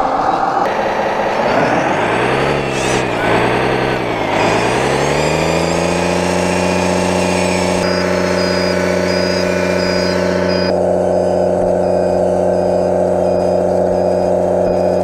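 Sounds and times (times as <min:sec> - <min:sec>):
toy bulldozer motor drone: 0:01.4 - 0:15.0
faint high beep: 0:06.6 - 0:15.0.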